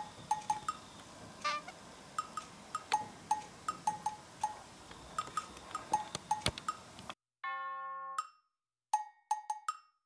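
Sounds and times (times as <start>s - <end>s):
light percussion tune: 2.2s - 6.9s, 7.5s - 10.0s.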